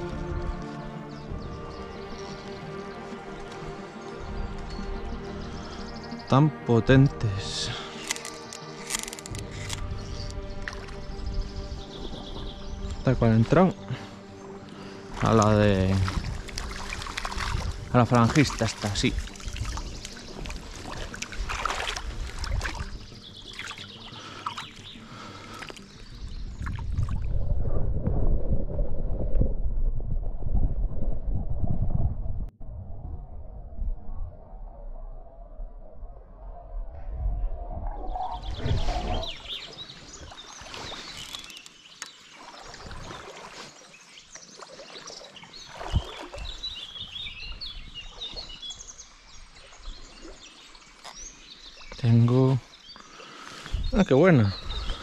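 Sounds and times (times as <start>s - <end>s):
wind: 0.0s - 55.0s
small birds chirping: 1.0s - 27.2s, 38.1s - 55.0s
river water splashing: 7.7s - 13.0s, 13.8s - 27.3s, 38.7s - 55.0s
low rumble of water: 14.8s - 41.5s, 42.3s - 52.3s.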